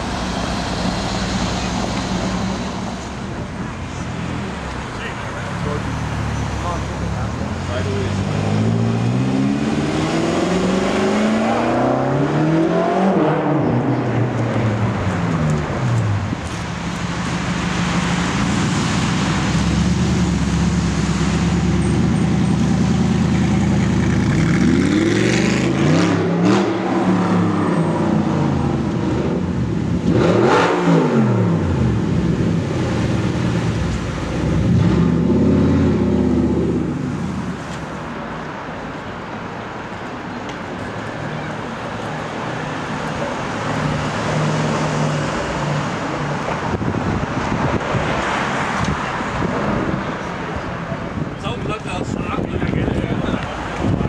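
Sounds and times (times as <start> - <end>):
car engines revving past: 0.0 - 38.2, 40.7 - 51.4
cars accelerating hard: 5.4 - 16.4, 17.2 - 37.6.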